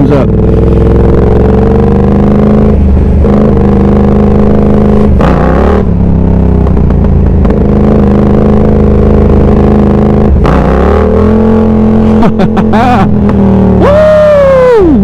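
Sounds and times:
motorcycle engine running: 0.0 - 15.0
rush of noise: 11.9 - 15.0.

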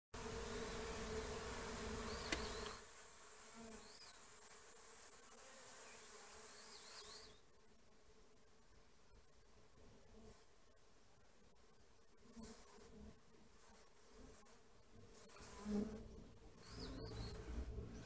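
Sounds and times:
honeybees buzzing: 0.2 - 7.3.

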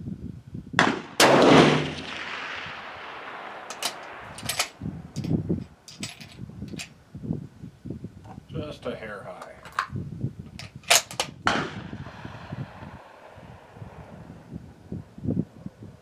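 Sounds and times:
rifle shot echoing: 0.8 - 5.2, 11.4 - 14.5
rifle bolt clicks: 3.7 - 6.9.

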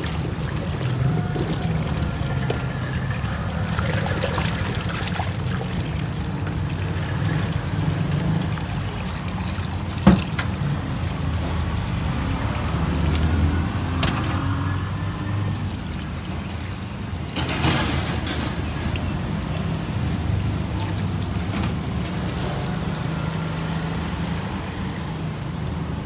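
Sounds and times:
tap water running into sink: 0.0 - 16.4.

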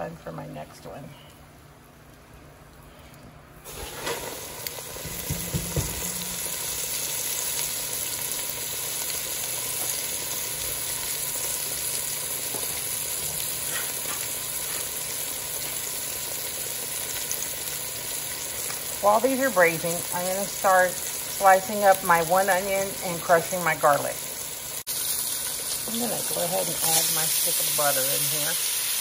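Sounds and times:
meat sizzling in hot oil: 3.7 - 29.0
low knocks: 5.1 - 6.4.

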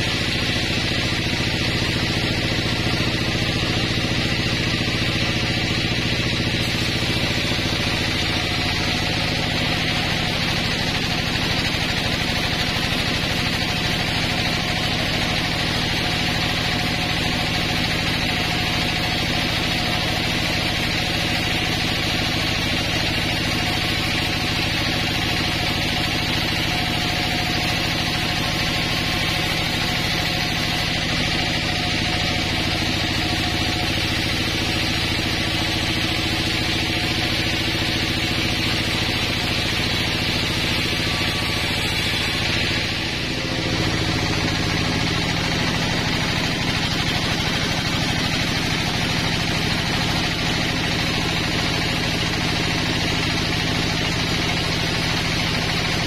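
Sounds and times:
motor hum: 0.0 - 19.4, 20.0 - 52.0.

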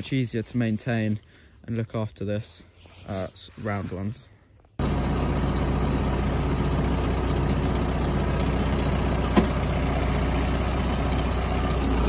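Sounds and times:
diesel engine idling: 4.8 - 12.0.

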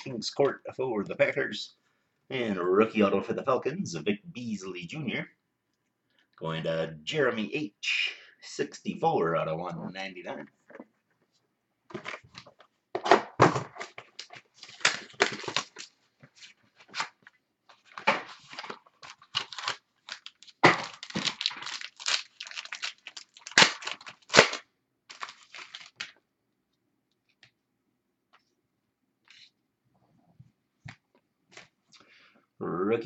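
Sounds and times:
wrapper tearing and crinkling: 14.0 - 16.0, 17.9 - 26.2.

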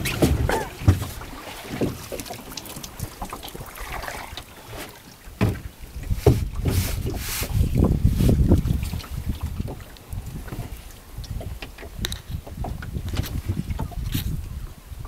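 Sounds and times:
wind buffeting the microphone: 5.3 - 15.0.

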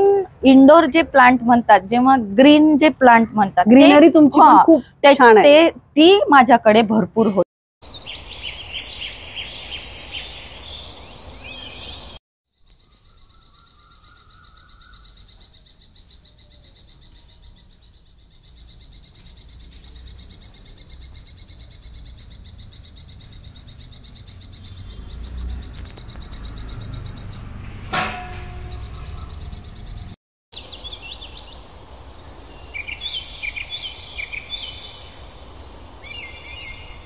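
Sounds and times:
birds chirping: 0.0 - 37.0.

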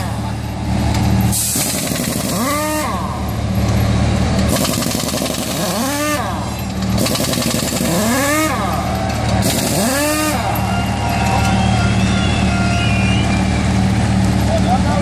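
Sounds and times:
pneumatic impact wrench: 1.2 - 3.2, 4.5 - 10.5.

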